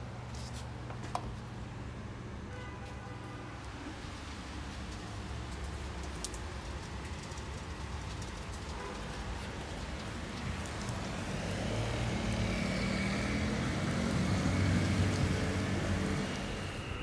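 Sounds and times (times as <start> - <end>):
outdoor street noise: 0.0 - 17.0
car passing: 9.6 - 17.0.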